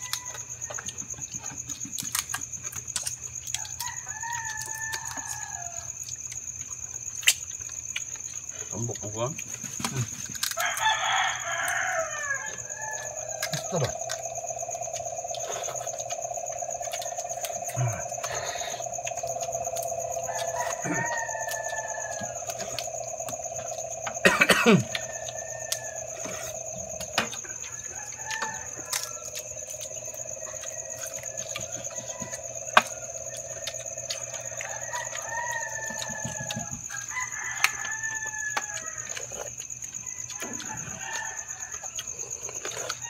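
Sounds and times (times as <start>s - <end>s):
high insect-like whine: 0.0s - 43.0s
crab shells clicking: 10.4s - 12.0s
chickens calling: 10.6s - 39.0s
steady hum: 12.6s - 34.6s.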